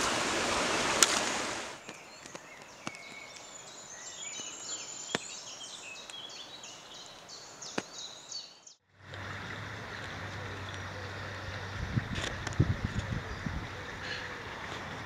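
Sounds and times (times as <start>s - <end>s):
river water rushing: 0.0s - 1.8s, 9.0s - 11.8s
faint outdoor hiss: 0.0s - 15.0s
bird singing: 1.8s - 8.8s, 9.9s - 11.8s.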